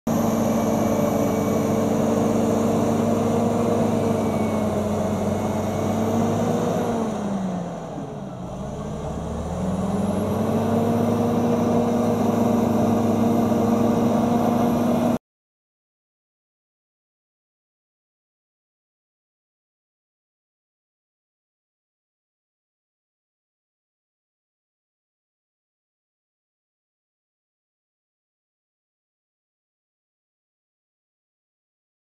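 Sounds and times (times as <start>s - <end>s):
bulldozer diesel engine running: 0.1s - 15.2s.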